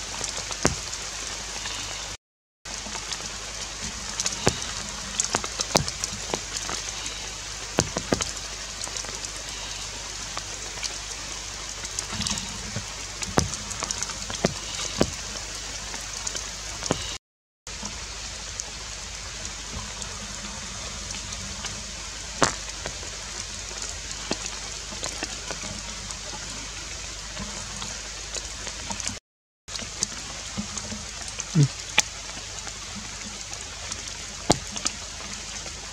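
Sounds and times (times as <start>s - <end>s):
rain hissing on foliage: 0.0s - 35.9s
sharp drips: 0.0s - 35.9s.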